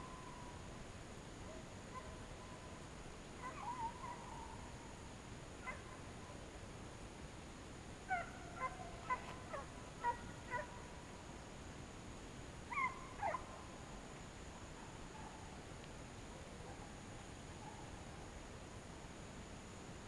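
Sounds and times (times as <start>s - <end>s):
dogs barking faintly: 5.6s - 6.4s, 8.1s - 11.0s, 14.6s - 18.4s.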